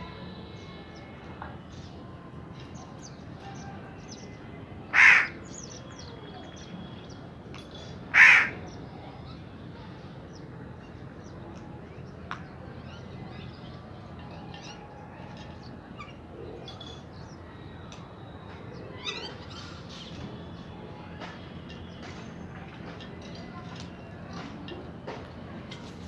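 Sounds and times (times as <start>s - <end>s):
crow cawing: 4.9s - 5.4s, 8.1s - 8.6s.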